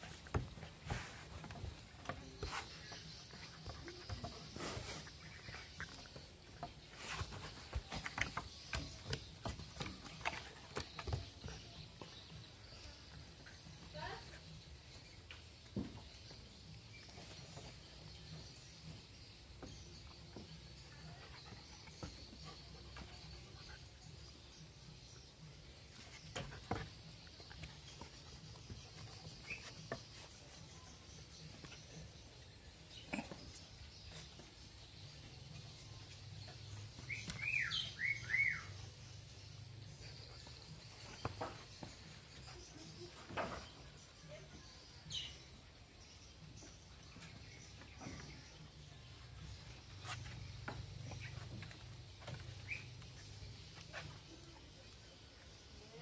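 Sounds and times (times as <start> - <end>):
low outdoor background: 0.0 - 56.0
dog's paws tapping on wooden boards: 5.8 - 12.4.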